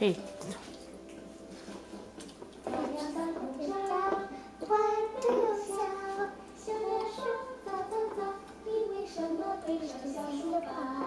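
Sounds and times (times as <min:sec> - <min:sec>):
young child singing: 0:02.7 - 0:11.0.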